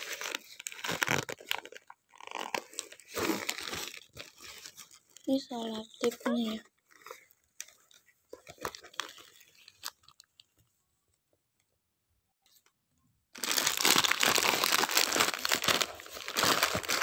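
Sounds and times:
paper crinkling and tearing: 0.0s - 5.4s, 6.0s - 10.4s, 13.4s - 17.0s.

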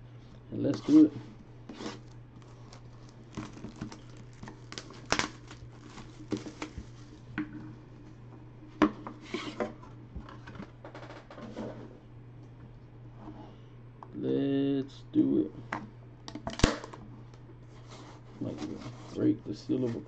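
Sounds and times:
low steady hum: 0.0s - 20.0s
cardboard rubbing and scraping: 1.7s - 2.7s, 17.8s - 20.0s.

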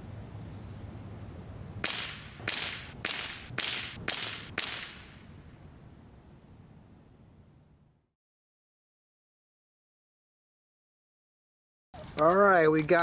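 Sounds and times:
air rifle shots: 1.8s - 5.2s.

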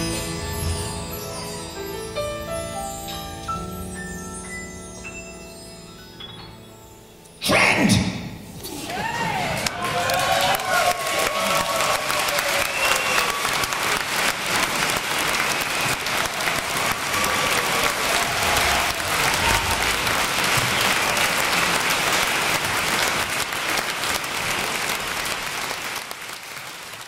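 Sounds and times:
audience applauding: 8.8s - 27.0s.

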